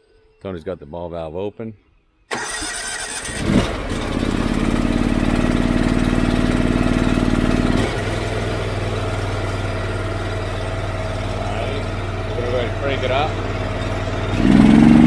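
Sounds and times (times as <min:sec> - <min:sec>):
starter motor cranking: 0:02.3 - 0:04.7
engine revving and idling: 0:02.4 - 0:15.0.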